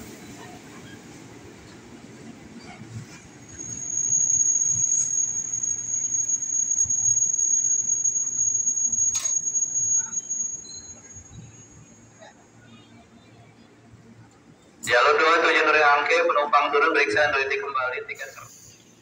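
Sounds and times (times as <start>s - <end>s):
train brakes squealing: 2.6s - 13.1s, 18.2s - 19.0s.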